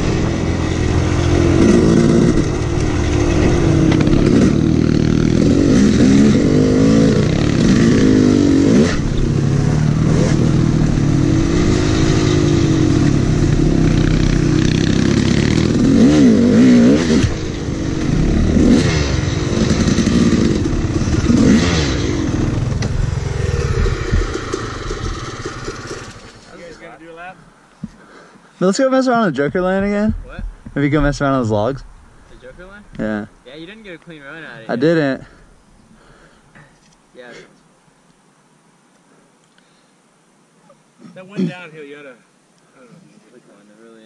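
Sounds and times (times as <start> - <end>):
dirt bike engines revving: 0.0 - 27.1.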